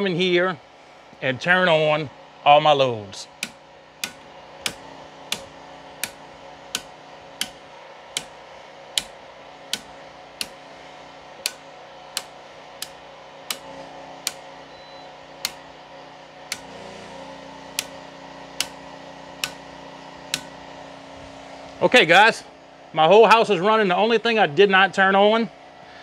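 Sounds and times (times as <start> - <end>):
steady hum: 0.0 - 26.0
circuit breaker clicks: 3.4 - 10.6, 11.4 - 14.5, 15.4 - 15.8, 16.5 - 16.8, 17.7 - 20.6.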